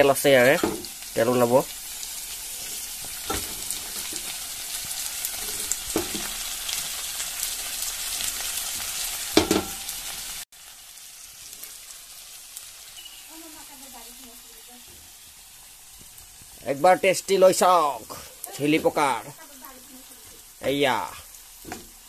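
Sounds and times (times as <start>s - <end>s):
onions sizzling in hot oil: 0.0s - 22.0s
cicadas: 12.9s - 13.5s.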